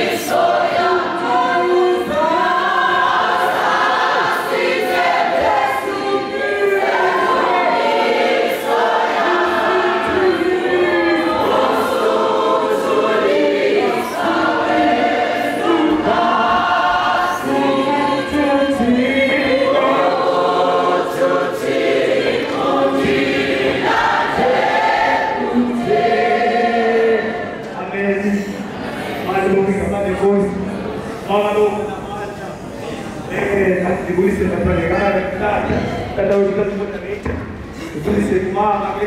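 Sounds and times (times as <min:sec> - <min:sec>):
choir singing a gospel hymn: 0:00.0 - 0:31.9.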